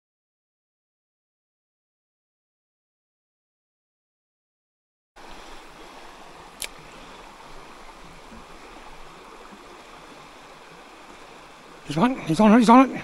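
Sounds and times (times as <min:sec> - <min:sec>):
creek water rushing over stones: 0:05.2 - 0:13.0.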